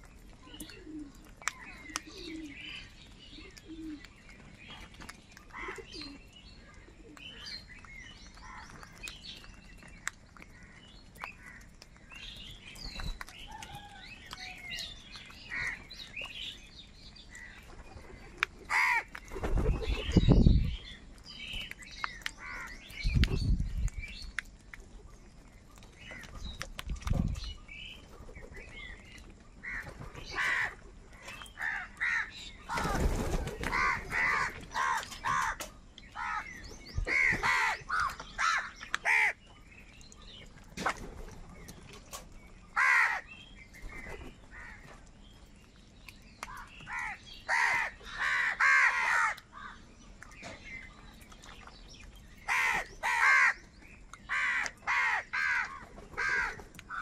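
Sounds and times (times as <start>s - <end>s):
crows cawing: 18.7s - 19.1s, 29.6s - 30.8s, 31.6s - 32.9s, 33.7s - 35.6s, 37.1s - 39.4s, 42.8s - 43.3s, 46.9s - 49.8s, 52.5s - 53.6s, 54.3s - 57.0s.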